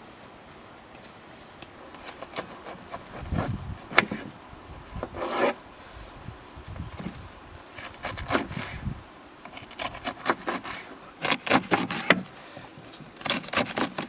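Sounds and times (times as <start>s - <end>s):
knife cutting cabbage: 7.8s - 8.8s, 9.5s - 12.3s, 13.2s - 14.0s.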